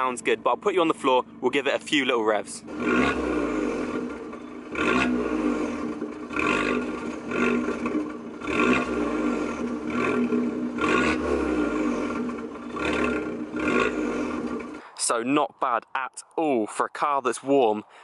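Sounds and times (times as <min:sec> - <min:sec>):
car engine revving: 0:00.9 - 0:14.9.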